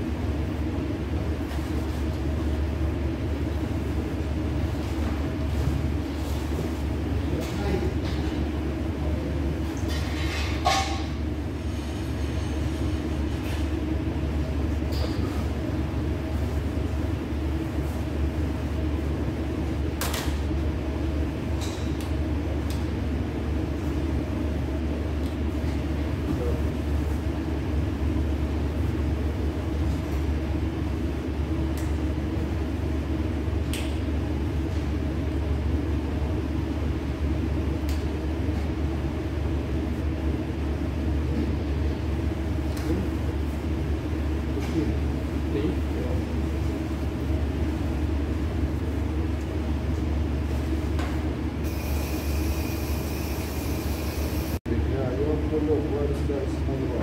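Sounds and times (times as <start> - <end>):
machine humming: 51.6 - 54.9.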